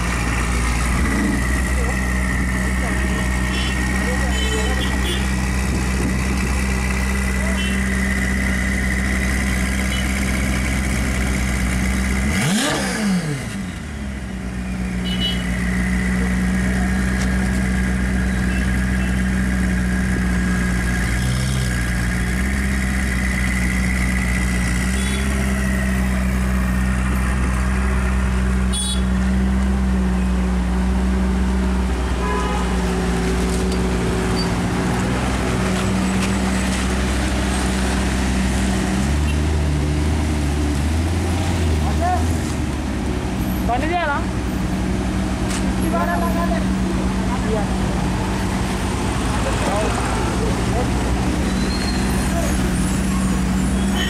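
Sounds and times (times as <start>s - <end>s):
engine revving: 0.0s - 14.0s, 15.4s - 28.6s
car engine idling: 0.0s - 39.2s, 41.7s - 54.0s.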